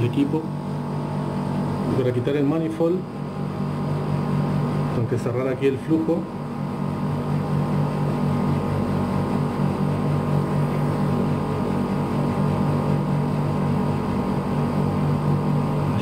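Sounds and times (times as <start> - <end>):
air conditioner unit humming: 0.0 - 16.0.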